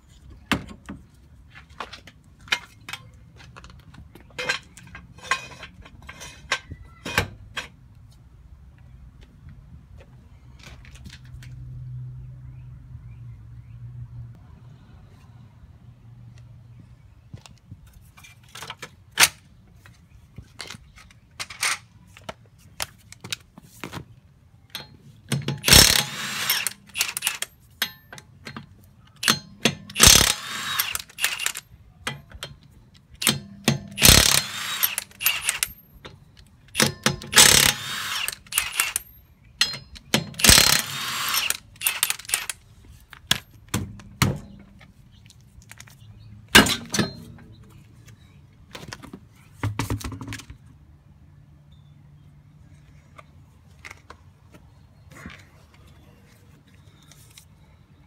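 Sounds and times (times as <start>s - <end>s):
metal nuts clicking and clinking: 24.7s - 36.0s, 36.7s - 42.6s
impact wrench hammering: 24.8s - 28.0s, 29.2s - 31.6s, 33.2s - 35.8s, 36.8s - 42.5s.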